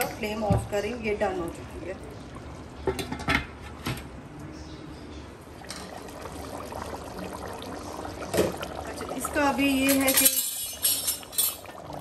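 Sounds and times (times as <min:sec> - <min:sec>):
cookware knocking and clinking: 0:09.8 - 0:11.7.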